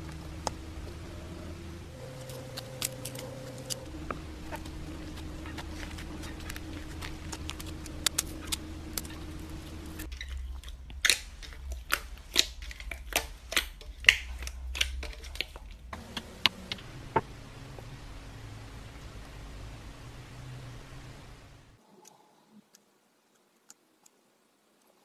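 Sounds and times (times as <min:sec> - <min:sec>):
hands squishing slime: 0:02.0 - 0:16.5.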